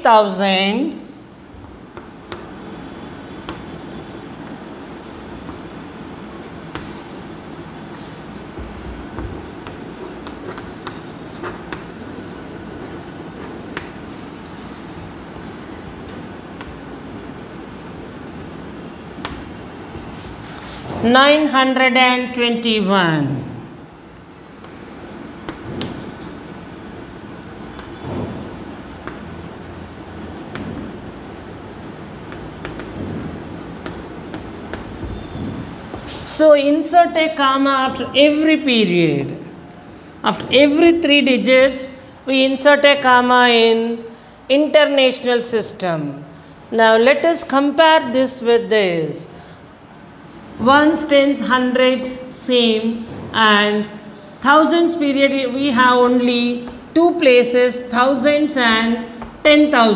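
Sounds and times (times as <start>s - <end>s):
steady low hum: 0.0s - 41.1s
chalk taps: 0.9s - 14.0s, 15.3s - 19.4s, 23.8s - 35.2s
chalk scratching on blackboard: 1.0s - 19.0s, 23.7s - 36.2s.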